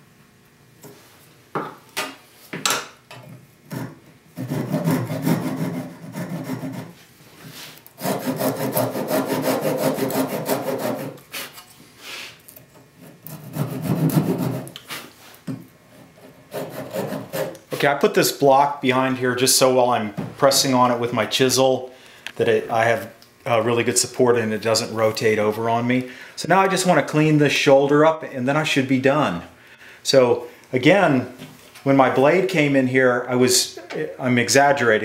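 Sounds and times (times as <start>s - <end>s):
hand saw cutting wood: 3.7s - 7.0s, 7.8s - 11.7s, 13.0s - 15.1s, 16.0s - 17.9s.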